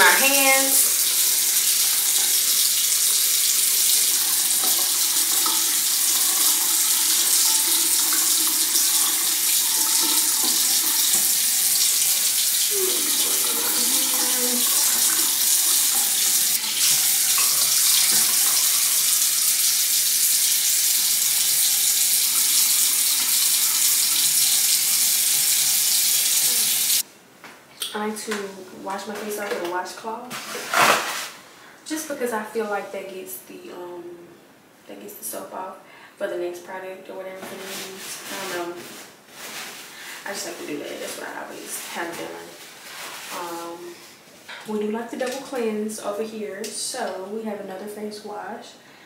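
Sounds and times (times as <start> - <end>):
sink tap running: 0.0 - 27.0.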